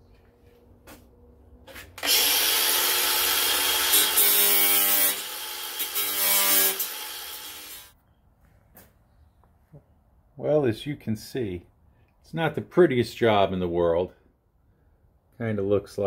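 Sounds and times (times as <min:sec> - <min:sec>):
angle grinder grinding metal: 0:02.0 - 0:07.9.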